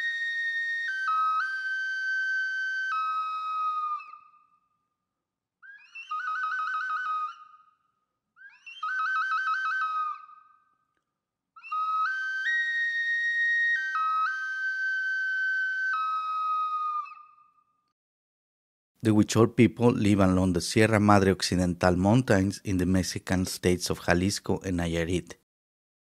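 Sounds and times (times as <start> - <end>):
solo flute melody: 0.0 - 4.8, 5.6 - 10.9, 11.6 - 17.7.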